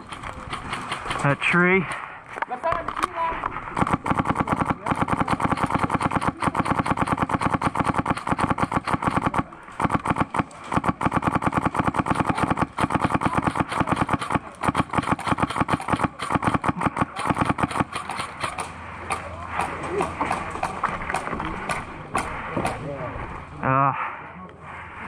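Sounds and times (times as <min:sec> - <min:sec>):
airsoft gun firing full auto: 0:00.0 - 0:01.6, 0:03.8 - 0:19.2.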